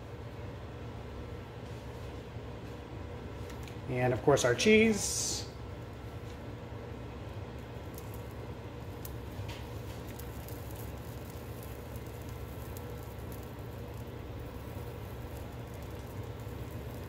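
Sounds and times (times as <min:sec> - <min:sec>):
steady low hum: 0:00.0 - 0:17.0
cheese sprinkled into a pan: 0:07.4 - 0:17.0.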